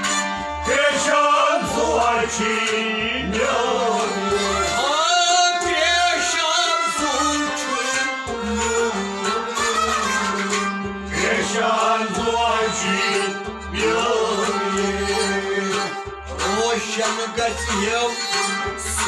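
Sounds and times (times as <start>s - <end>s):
plucked stringed instruments: 0.0s - 19.0s
man singing: 0.6s - 8.1s, 11.1s - 19.0s
steady drum beat: 8.3s - 19.0s.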